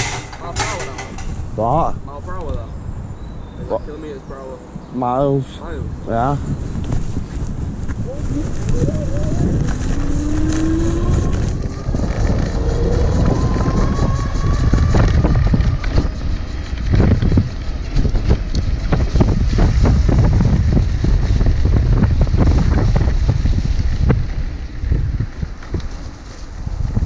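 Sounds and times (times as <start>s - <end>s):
bike rattles and knocks: 0.0s - 1.8s
wind buffeting microphone: 0.0s - 27.0s
electric motor whining: 8.3s - 16.0s.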